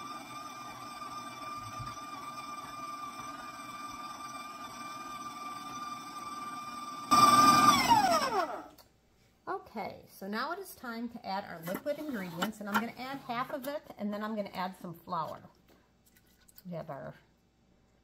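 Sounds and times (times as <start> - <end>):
stand mixer motor whining: 0.0 - 8.7.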